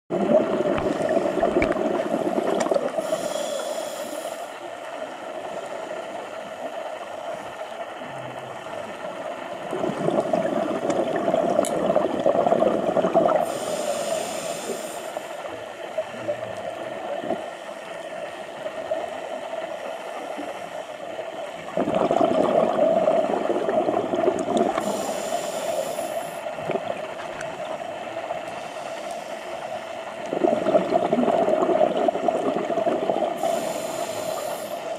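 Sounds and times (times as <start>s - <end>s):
exhaled bubbles rumbling underwater: 0.1s - 34.9s
steady hum: 0.1s - 34.9s
regulator air hiss: 3.0s - 4.7s, 13.4s - 15.6s, 24.8s - 26.6s, 28.4s - 30.0s, 33.4s - 34.9s.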